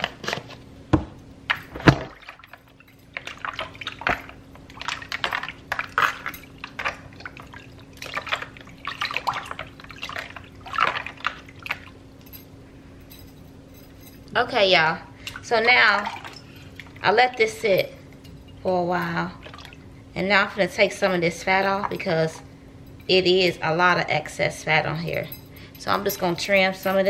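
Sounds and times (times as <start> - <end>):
faint steady hum: 0.0 - 27.0
hands splashing water in a bowl: 3.2 - 11.9.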